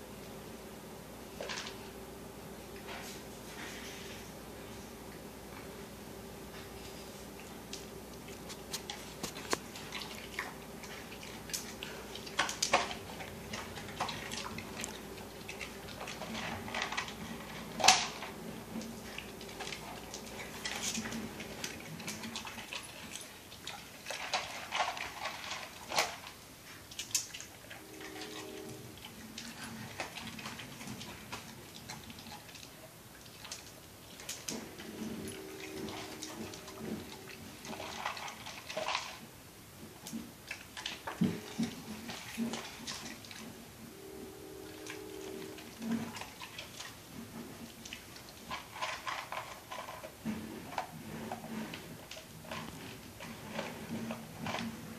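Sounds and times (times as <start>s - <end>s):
faint steady hum: 0.0s - 54.9s
dog licking: 8.2s - 16.4s.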